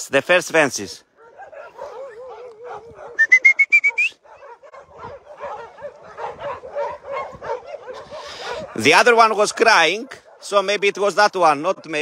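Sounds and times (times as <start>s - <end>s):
rising whistle notes: 3.2s - 4.2s.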